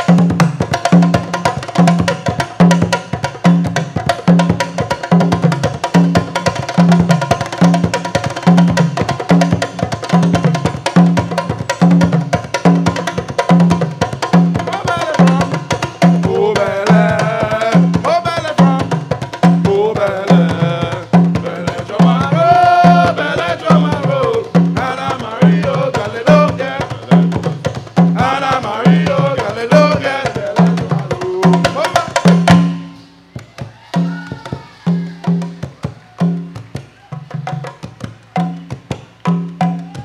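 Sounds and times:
hand drums: 0.0s - 40.0s
voices singing: 14.6s - 37.4s.

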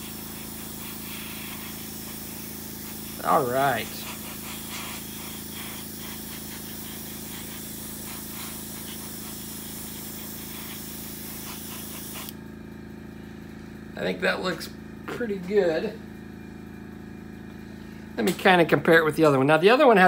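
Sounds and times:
airbrush spraying hiss: 0.0s - 12.4s.

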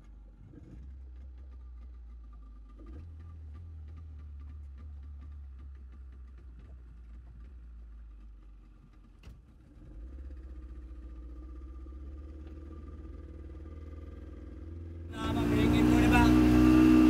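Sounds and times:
outboard motor running: 9.9s - 17.0s.

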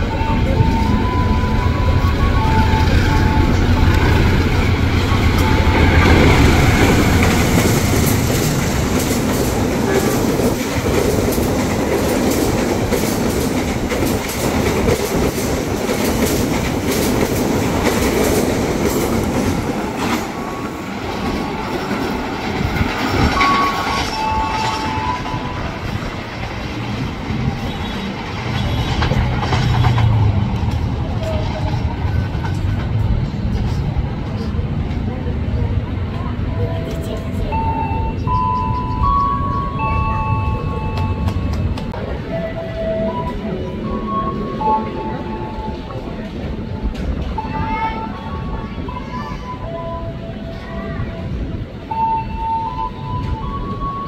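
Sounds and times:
locomotive engine rumble: 0.0s - 54.0s
train wheels clacking over rail joints: 5.3s - 35.1s.

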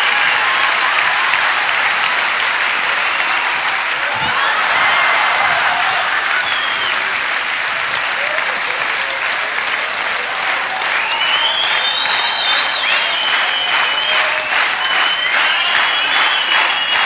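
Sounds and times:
audience applauding: 0.0s - 17.0s
shrill whistles: 6.3s - 7.1s, 10.9s - 17.0s.

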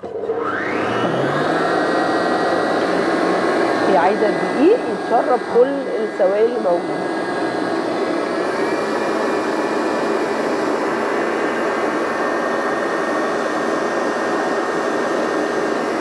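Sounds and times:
stand mixer motor whining: 0.0s - 16.0s.

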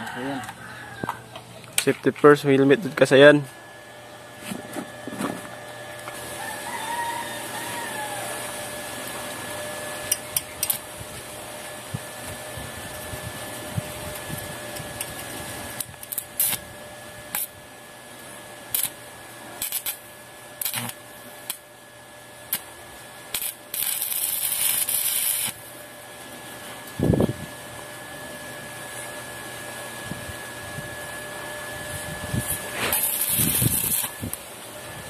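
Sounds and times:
arc welding crackling: 5.9s - 27.3s, 31.9s - 34.6s.

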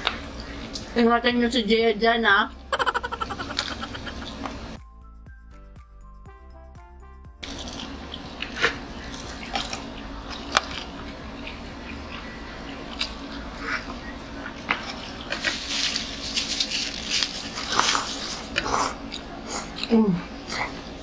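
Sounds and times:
low hum: 2.4s - 17.6s.

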